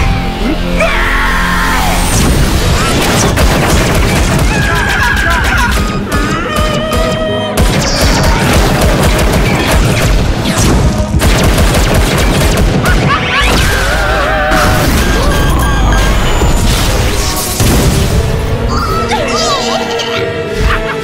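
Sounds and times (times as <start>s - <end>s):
music: 0.0s - 21.0s
cartoon booms and crashes: 2.0s - 5.8s, 12.5s - 18.3s.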